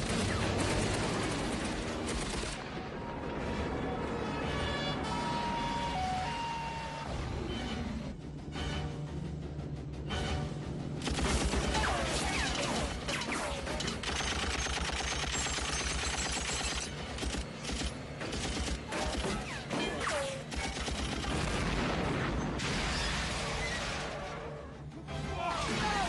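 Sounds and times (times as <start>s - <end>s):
rapid gunfire: 0.0s - 2.8s, 11.0s - 23.4s
film music score: 0.0s - 26.0s.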